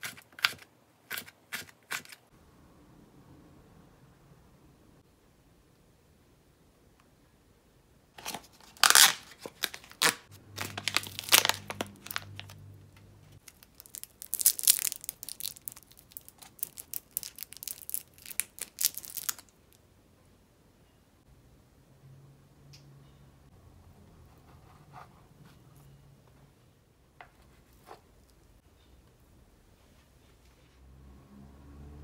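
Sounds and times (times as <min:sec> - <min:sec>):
plastic wrappers crinkling: 0:08.2 - 0:12.6, 0:13.4 - 0:19.6.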